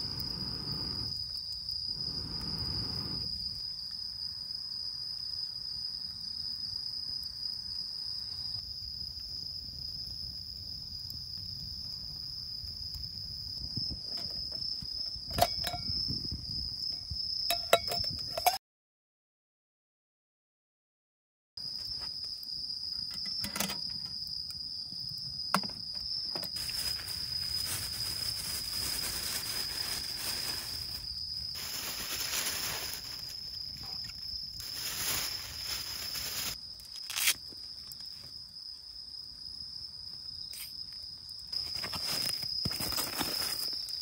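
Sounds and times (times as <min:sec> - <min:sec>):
rustling hissing noise: 0:00.0 - 0:03.6, 0:26.5 - 0:37.4
insect trilling: 0:00.0 - 0:03.7, 0:25.4 - 0:38.1.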